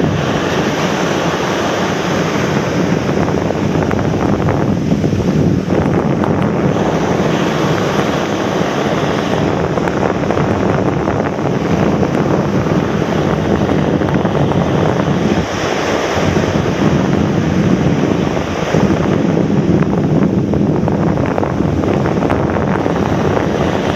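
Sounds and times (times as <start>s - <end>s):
ocean surf breaking on beach: 0.0s - 23.9s
wind buffeting microphone: 0.0s - 23.9s.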